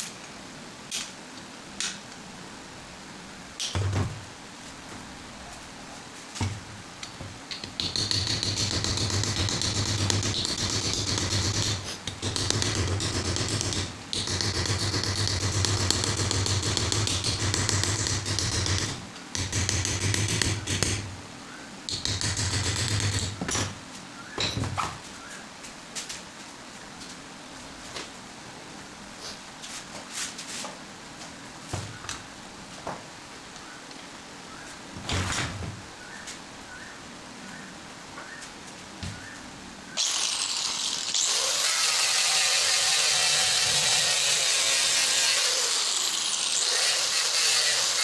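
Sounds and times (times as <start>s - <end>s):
power tool whining: 40.0s - 48.0s.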